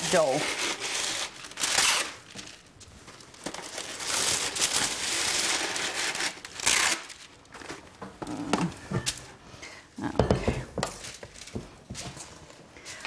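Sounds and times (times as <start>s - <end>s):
paper tearing: 0.0s - 2.3s, 3.6s - 7.3s
wax paper crinkling: 0.0s - 8.0s, 10.9s - 13.0s.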